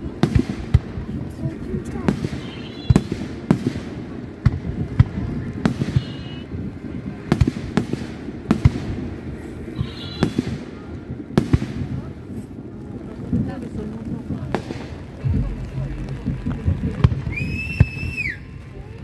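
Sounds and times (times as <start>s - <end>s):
low rumble: 12.9s - 19.0s
firework shells bursting: 13.6s - 19.0s.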